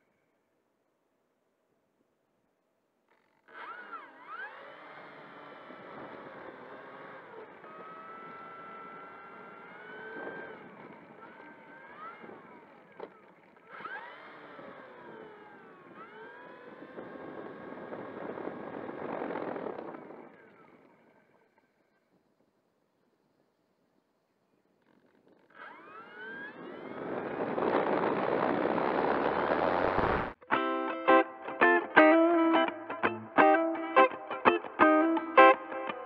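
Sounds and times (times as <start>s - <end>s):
model plane motor whining: 3.1s - 22.1s, 24.8s - 30.4s.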